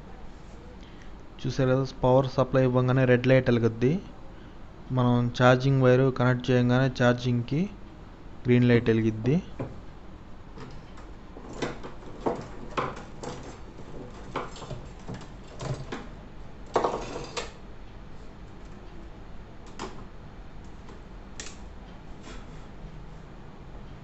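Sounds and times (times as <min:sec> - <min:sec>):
tools clicking and knocking on wood: 0:10.6 - 0:17.6.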